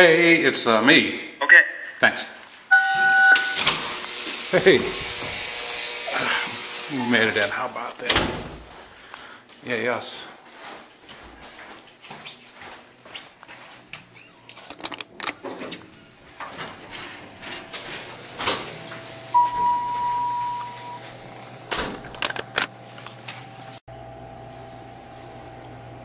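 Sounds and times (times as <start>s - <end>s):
steady electronic beep: 2.7s - 3.7s, 19.3s - 21.1s
footsteps in a hallway: 8.6s - 14.7s
elevator car humming: 15.8s - 23.7s.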